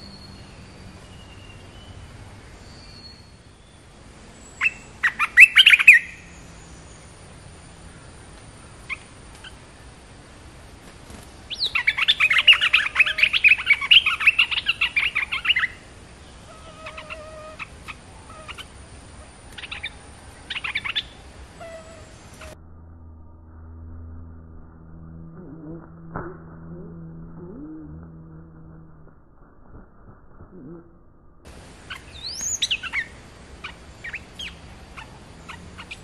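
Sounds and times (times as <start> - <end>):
bulbuls chirping and singing: 4.6 - 6.2, 11.1 - 22.6, 31.8 - 36.0
steady high-pitched tone: 22.5 - 28.7.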